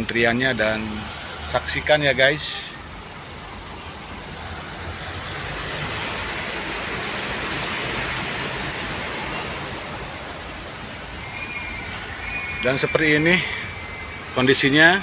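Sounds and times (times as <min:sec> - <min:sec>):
diesel truck engine idling: 0:00.0 - 0:15.0
traffic noise: 0:00.0 - 0:15.0
rushing hiss: 0:01.0 - 0:01.5.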